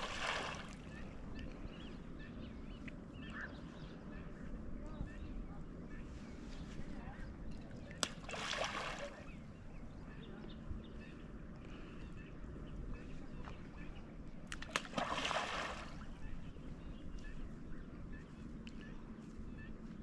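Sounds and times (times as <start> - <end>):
splash into lake water: 0.0 - 0.8, 8.0 - 9.2, 14.6 - 16.0
steady low rumble: 0.0 - 20.0.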